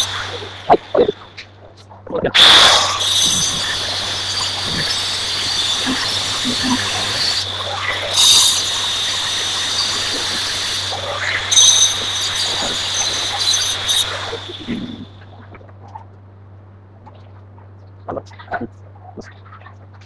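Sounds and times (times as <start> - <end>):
angle grinder grinding stone: 0.0 - 1.4, 2.4 - 15.1.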